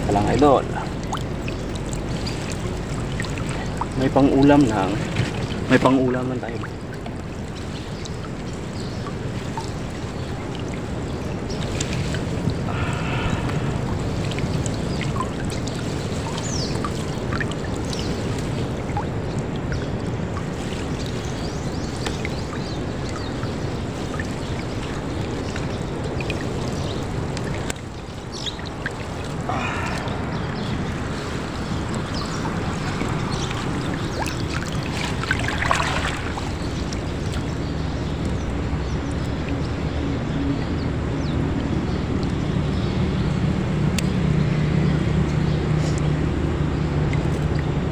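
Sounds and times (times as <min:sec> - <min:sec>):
low steady hum: 0:00.0 - 0:47.9
water splashing off a net: 0:01.0 - 0:38.3.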